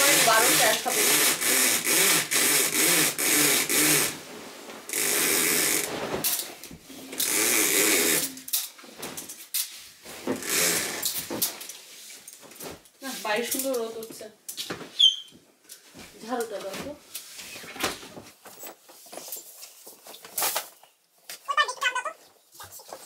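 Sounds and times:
window blind mechanism rattling: 0:00.0 - 0:04.2, 0:04.9 - 0:09.7, 0:10.3 - 0:14.1.

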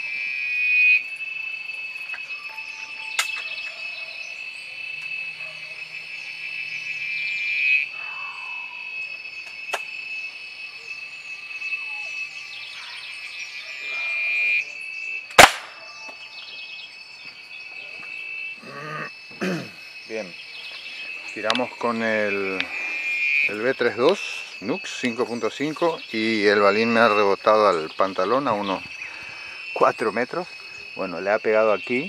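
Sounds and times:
insects droning and chirping: 0:00.0 - 0:32.0
air rifle shot: 0:15.4 - 0:15.8.

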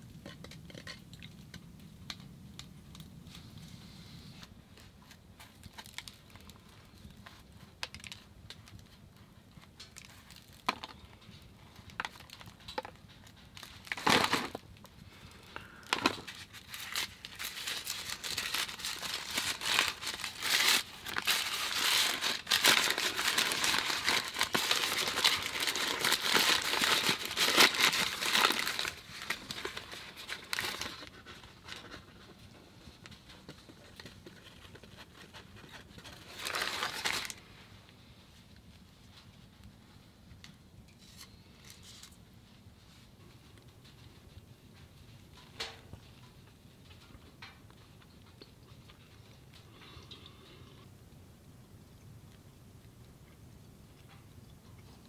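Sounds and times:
paper wrapping crinkling: 0:04.4 - 0:37.5, 0:41.0 - 0:42.2.

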